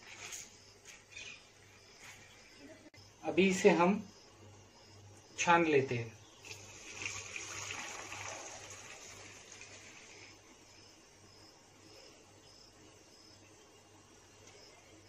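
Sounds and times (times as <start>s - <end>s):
water trickling into pot: 6.3s - 10.4s.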